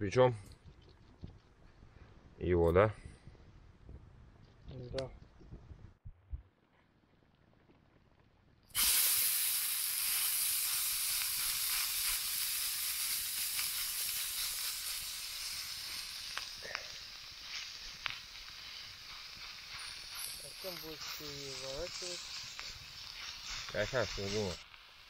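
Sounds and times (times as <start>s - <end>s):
meat patty sizzling: 8.8s - 25.0s.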